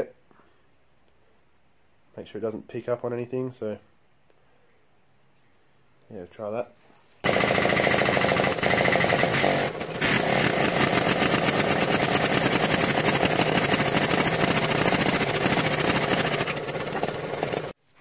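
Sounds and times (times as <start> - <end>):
press pump pulsing: 7.2 - 17.8.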